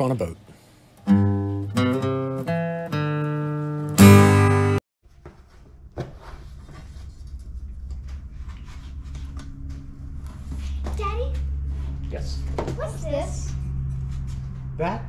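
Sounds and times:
acoustic guitar strumming: 1.0 - 4.8, 10.1 - 14.8
low room hum: 5.1 - 15.0.

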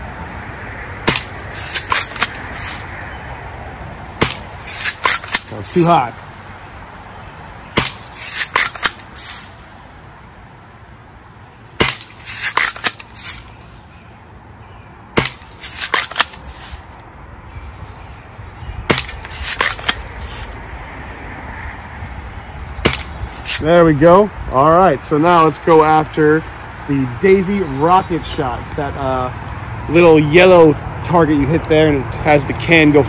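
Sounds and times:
bb gun firing: 1.1 - 2.4, 11.8 - 13.0.

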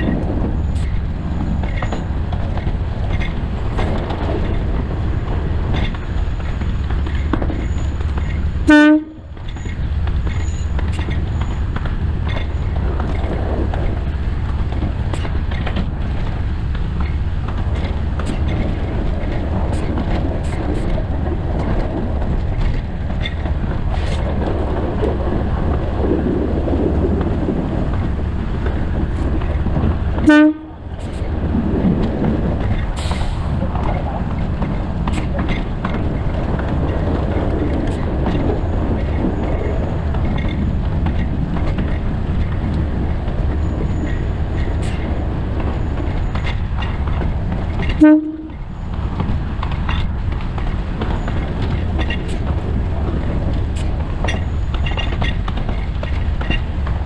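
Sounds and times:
train rumbling along track: 0.0 - 57.0
train horn toots: 8.6 - 9.3, 30.2 - 30.8, 48.0 - 48.7.

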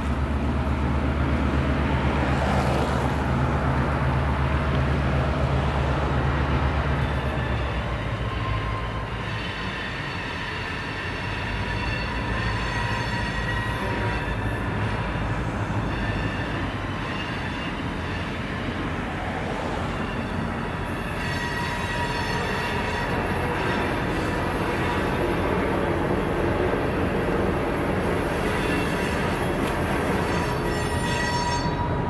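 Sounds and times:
diesel locomotive engine rumble: 0.0 - 32.0.

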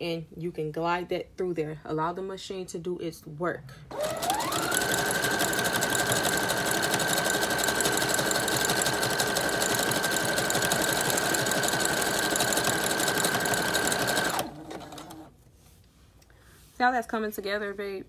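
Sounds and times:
sewing machine running: 3.9 - 15.3.

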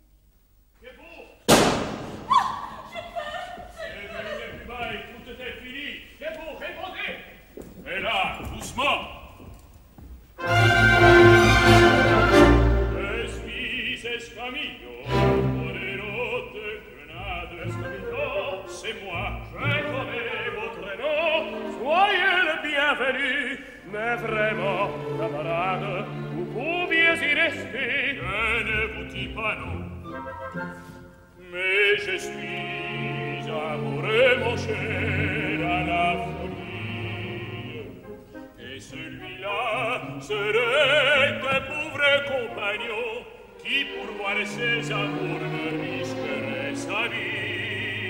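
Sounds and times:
orchestra playing: 10.4 - 13.9, 14.9 - 22.5, 23.9 - 48.0
men singing opera: 10.4 - 30.7, 31.4 - 48.0.

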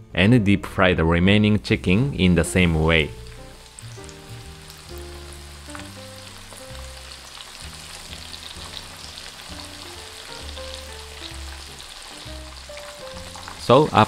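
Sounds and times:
soft background music: 0.0 - 14.0
chicken deep-frying in oil: 2.8 - 14.0.

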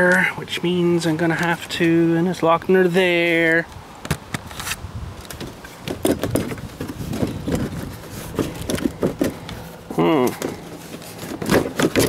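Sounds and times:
plastic panels knocking and creaking: 5.3 - 9.6, 10.2 - 12.0.

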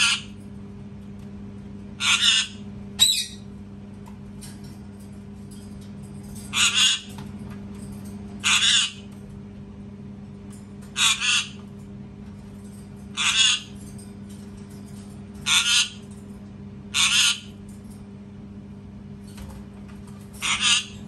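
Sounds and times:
parakeet screeching: 0.0 - 0.4, 2.0 - 3.4, 6.5 - 7.1, 8.4 - 9.1, 11.0 - 11.6, 13.2 - 13.8, 15.4 - 16.0, 16.9 - 17.6, 20.4 - 21.0.

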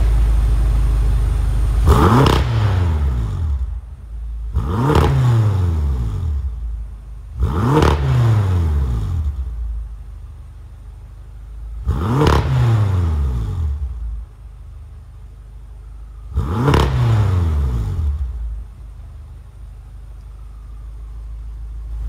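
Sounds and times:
car engine revving and idling: 0.0 - 22.0.

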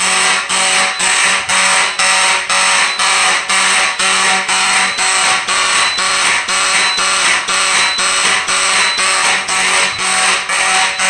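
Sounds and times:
raspy buzzing motor horn blasts: 0.0 - 11.0.

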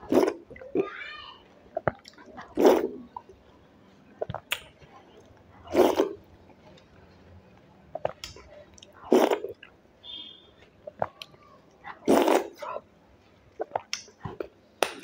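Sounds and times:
wet slurps: 0.0 - 0.9, 1.7 - 3.3, 4.2 - 4.7, 5.6 - 6.3, 7.9 - 9.7, 12.0 - 12.8, 13.5 - 14.5
lip smacks and squelches: 1.7 - 3.3, 4.1 - 6.9, 7.9 - 9.8, 13.5 - 15.0.

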